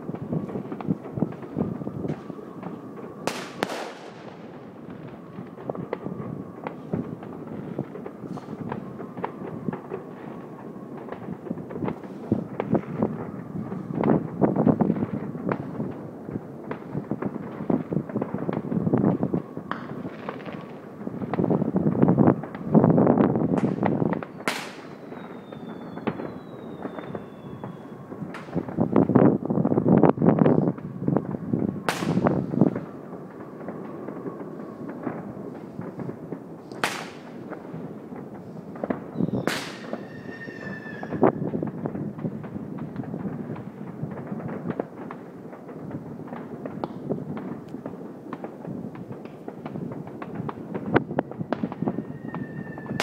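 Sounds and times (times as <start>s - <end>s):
sharp firework crack: 0.0s - 10.4s, 16.6s - 29.3s, 30.0s - 53.0s
distant fireworks bangs and pops: 0.0s - 53.0s
high falling whistle: 24.3s - 28.0s, 39.1s - 41.2s, 51.9s - 53.0s.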